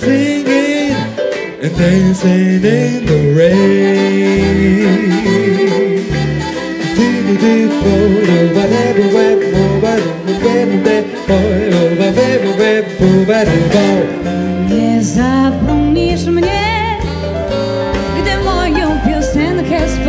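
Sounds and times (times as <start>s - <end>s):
person singing: 0.0s - 17.1s
salon orchestra playing: 0.0s - 20.0s.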